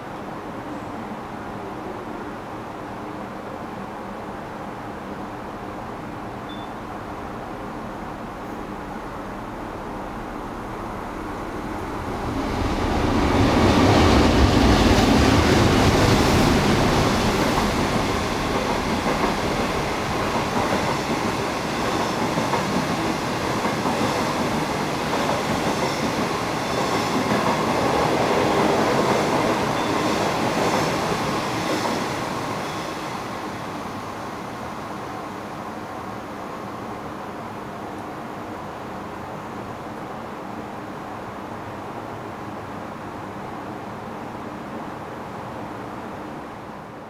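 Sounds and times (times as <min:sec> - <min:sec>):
train wheels clicking on rails: 0:12.0 - 0:34.1.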